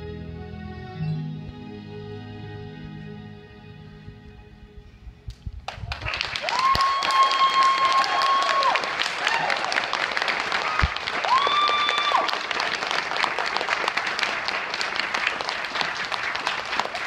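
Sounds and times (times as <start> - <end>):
audience clapping: 5.6 - 17.0
high held whoop: 6.3 - 9.8, 10.6 - 12.4.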